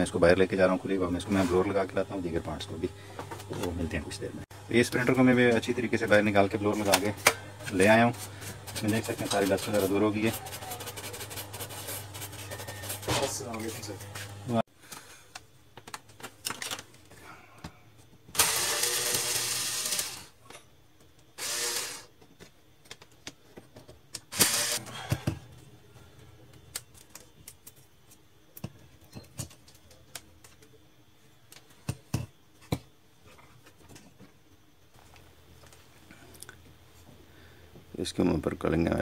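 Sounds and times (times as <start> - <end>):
clicks and knocks of parts handled: 14.9 - 17.1
whooshing motor-driven tool: 21.4 - 22.1.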